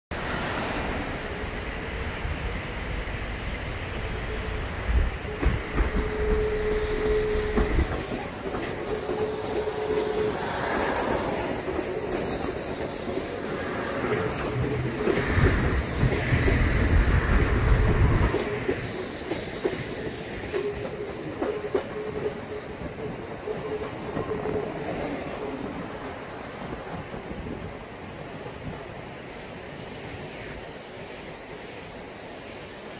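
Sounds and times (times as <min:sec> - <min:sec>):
train wheels clacking over rail joints: 0:04.9 - 0:28.8.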